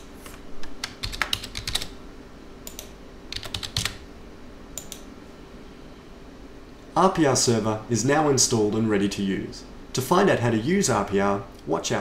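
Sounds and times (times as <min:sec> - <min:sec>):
computer keyboard typing: 0:00.2 - 0:01.9, 0:02.6 - 0:04.0.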